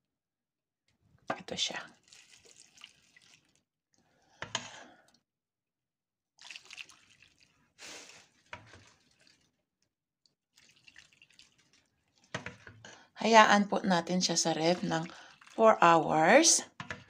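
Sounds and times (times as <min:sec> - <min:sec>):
liquid splashing into dish: 0:02.0 - 0:03.6, 0:06.4 - 0:07.6, 0:08.2 - 0:09.5, 0:10.6 - 0:12.7, 0:14.9 - 0:15.6.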